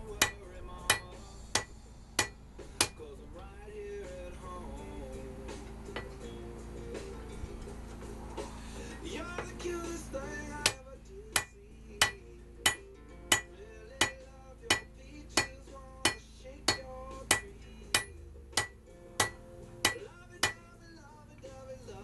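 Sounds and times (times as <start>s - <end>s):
hammer striking steel on anvil: 0.2s - 3.0s, 6.0s - 6.2s, 11.4s - 20.6s.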